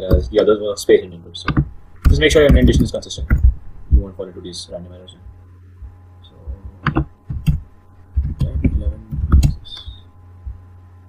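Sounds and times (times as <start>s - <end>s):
steady low hum: 0.0s - 11.0s
laptop keyboard typing: 1.5s - 3.5s, 6.6s - 10.0s.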